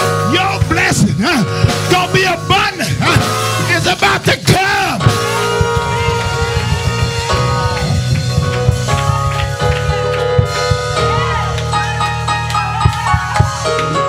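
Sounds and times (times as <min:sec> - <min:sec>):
drum kit: 0:00.0 - 0:14.0
sustained keyboard chords: 0:00.0 - 0:14.0
held bass line: 0:04.9 - 0:14.0.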